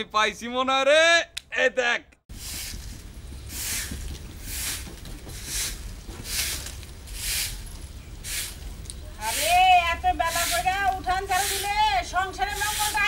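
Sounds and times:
broom sweeping earth: 2.3 - 13.0.

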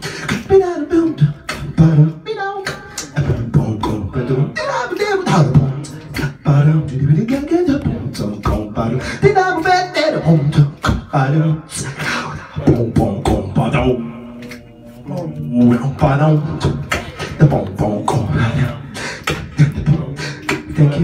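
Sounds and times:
beatboxing into a microphone: 0.0 - 21.0.

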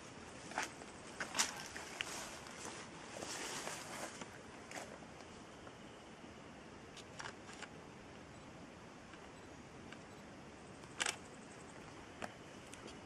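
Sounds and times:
faint steady hiss: 0.0 - 13.0
sharp clicks: 10.8 - 11.2.

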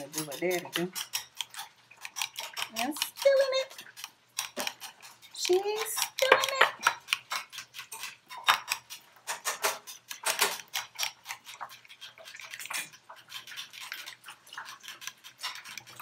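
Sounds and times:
spoon scraping glass bowl: 0.0 - 16.0.

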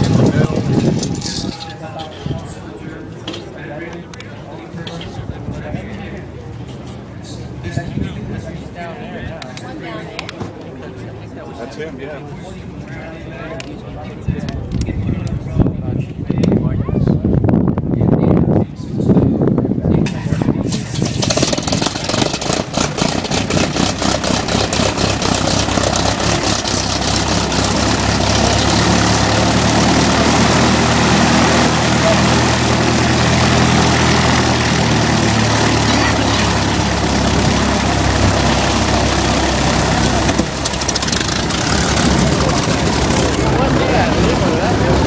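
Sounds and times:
propeller airplane engine starting: 0.0 - 3.1, 20.1 - 45.0.

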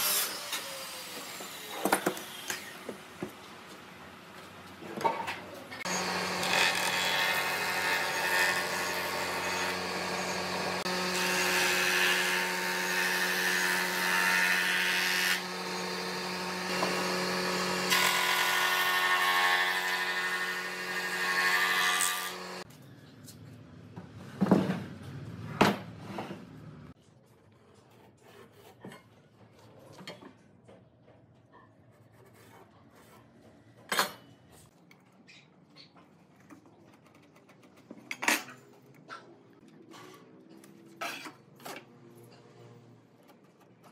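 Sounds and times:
jointer planing wooden board: 5.9 - 22.6.

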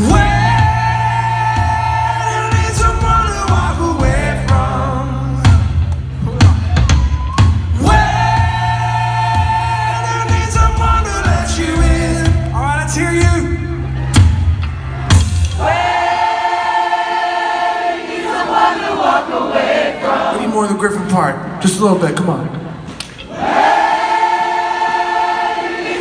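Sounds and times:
live rock band: 0.0 - 16.5.

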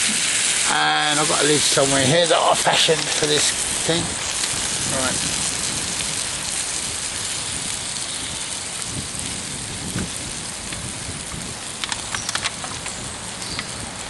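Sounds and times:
pan sizzling over fire: 0.0 - 14.0
sharp clicks: 11.8 - 13.8.

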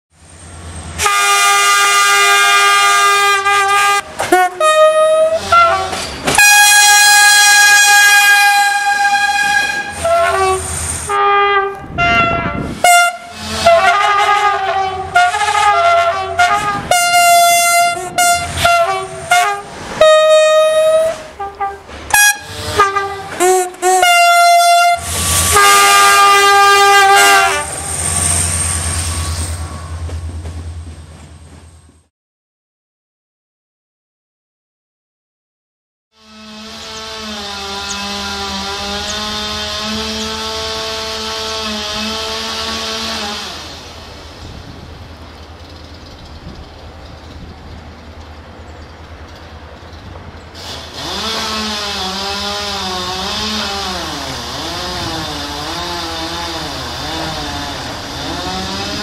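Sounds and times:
passing train rumbling: 0.1 - 32.1, 36.2 - 59.0
train horn blasts: 1.0 - 29.3, 36.2 - 43.8, 51.0 - 59.0.

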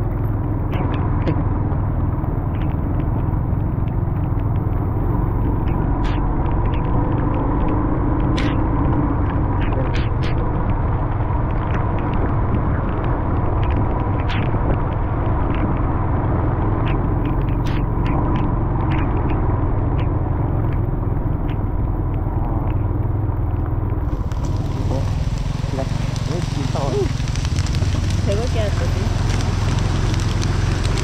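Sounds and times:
motorbike engine running: 0.0 - 31.0
raindrops ticking on camera: 0.0 - 31.0.

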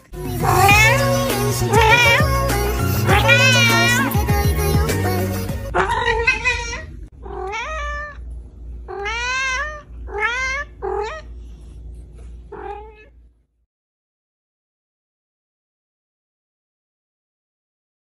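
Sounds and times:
cat meowing: 0.4 - 4.3, 5.8 - 8.2, 8.9 - 11.3, 12.5 - 13.1.

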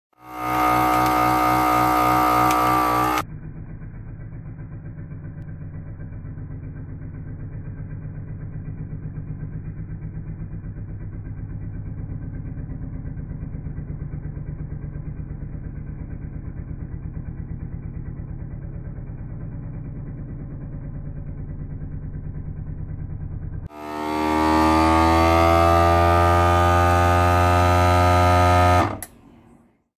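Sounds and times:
vacuum sealer pump whining: 0.1 - 29.5.

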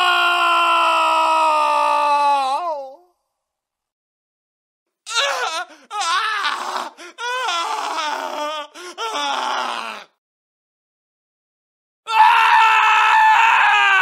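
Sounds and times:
man screaming and wailing: 0.0 - 3.1, 12.1 - 14.0.

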